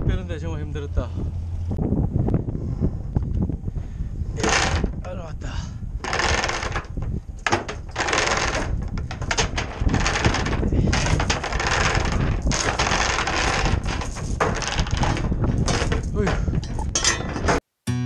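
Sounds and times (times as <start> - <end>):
wind: 0.0 - 17.6
anchor chain clinking and rattling: 4.4 - 5.1, 6.0 - 17.6.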